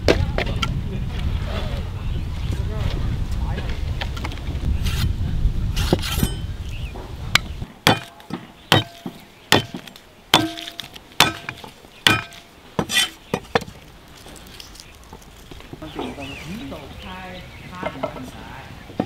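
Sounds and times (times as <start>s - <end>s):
cleaver chopping on wooden block: 7.4s - 13.7s.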